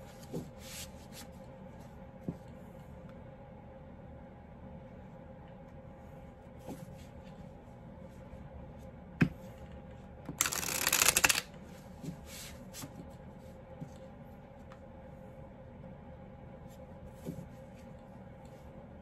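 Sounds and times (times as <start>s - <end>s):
cards shuffling: 10.4s - 11.5s.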